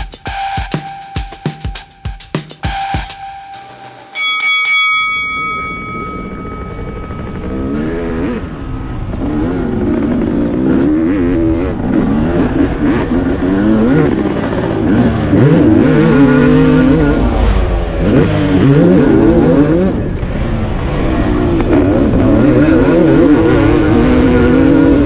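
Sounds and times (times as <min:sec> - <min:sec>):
sharp ringing hit: 0:00.0 - 0:08.8
motocross bike engines revving: 0:05.7 - 0:25.0.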